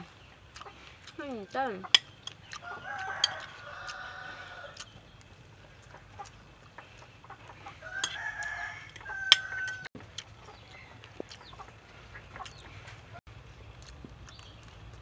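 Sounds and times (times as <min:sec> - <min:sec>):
rooster crowing: 0:02.6 - 0:04.8, 0:07.8 - 0:09.9.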